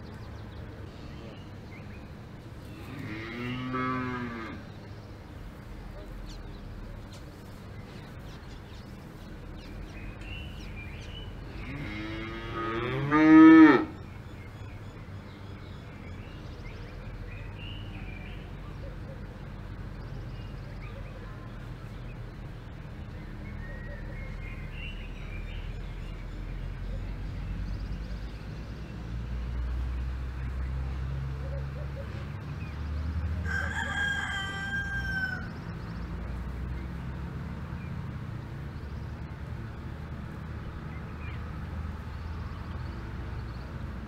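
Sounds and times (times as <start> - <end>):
faint outdoor background: 0.0 - 44.0
cow mooing: 2.8 - 4.6, 11.6 - 14.0.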